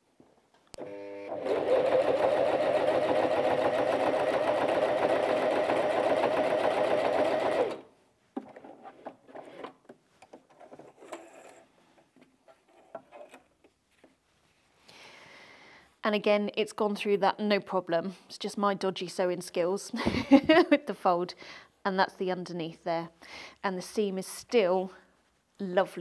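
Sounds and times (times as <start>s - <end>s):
sewing machine stitching: 0.8s - 7.9s.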